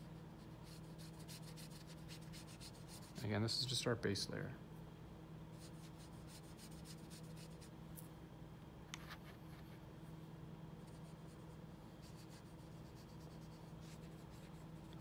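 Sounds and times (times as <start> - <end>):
low steady hum: 0.0 - 15.0
watercolour brush on paper: 0.6 - 3.2, 10.8 - 15.0.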